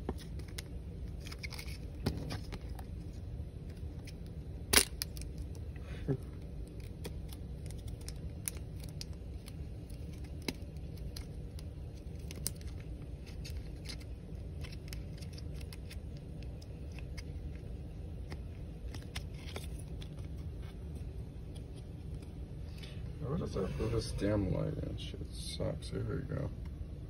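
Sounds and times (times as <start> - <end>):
plastic and card clicks and scrapes: 0.0 - 5.6, 6.6 - 22.3
low hum: 0.0 - 27.0.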